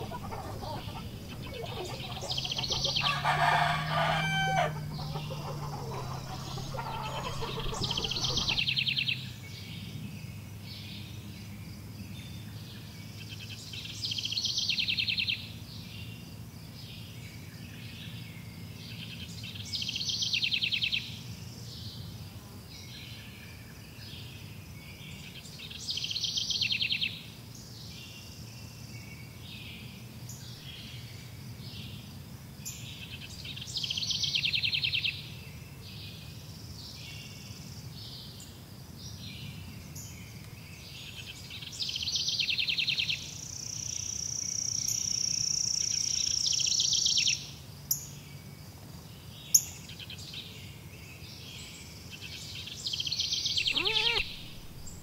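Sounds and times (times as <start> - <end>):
rooster crowing: 0.0 - 8.6, 53.6 - 55.0
high buzzy bird trill: 0.0 - 8.7, 53.6 - 55.0
chickens clucking: 0.0 - 8.8, 53.6 - 55.0.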